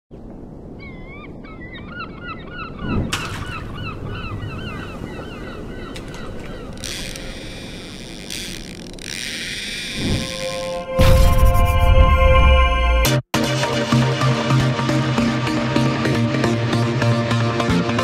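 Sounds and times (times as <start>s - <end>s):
seagulls calling: 0.7s - 10.8s.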